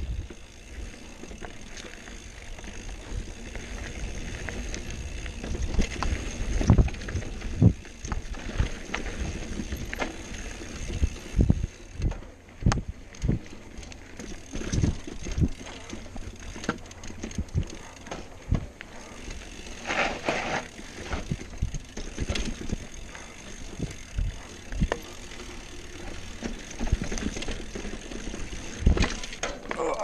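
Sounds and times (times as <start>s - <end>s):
tyres rolling on dirt: 0.0s - 30.0s
bike knocks and clunks on rocks: 28.6s - 30.0s.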